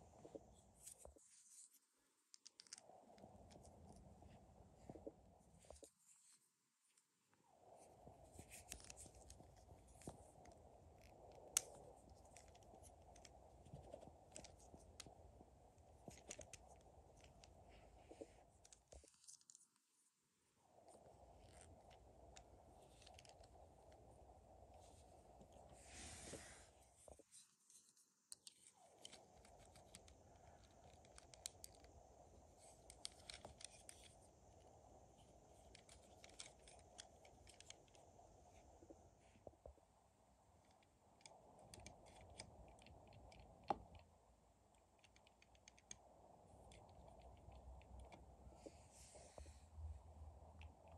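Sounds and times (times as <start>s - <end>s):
plastic parts clicking together: 2.3s - 2.8s.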